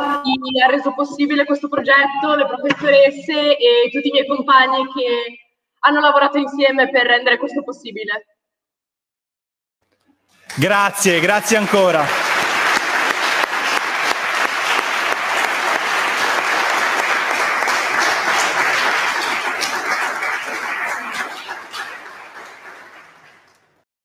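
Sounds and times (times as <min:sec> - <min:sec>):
people clapping: 0:10.4 - 0:23.9.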